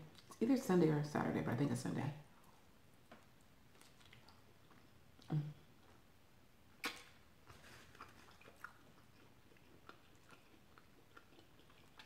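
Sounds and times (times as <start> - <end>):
mouth clicks of chewing: 6.8 - 7.2, 7.9 - 12.0.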